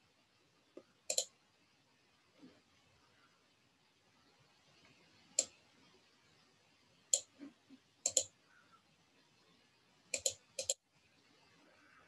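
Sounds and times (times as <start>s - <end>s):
computer mouse button clicks: 8.1s - 8.3s.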